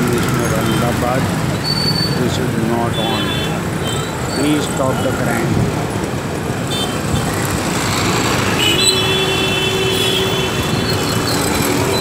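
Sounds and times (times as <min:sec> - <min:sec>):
small vehicle engines passing: 0:07.0 - 0:12.0
vehicle horn: 0:08.6 - 0:11.0.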